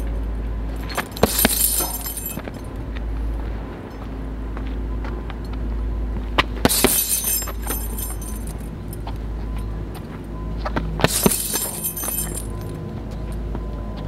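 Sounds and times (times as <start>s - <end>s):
metal chains jangling: 0.8s - 2.7s, 6.7s - 9.0s, 11.1s - 12.7s.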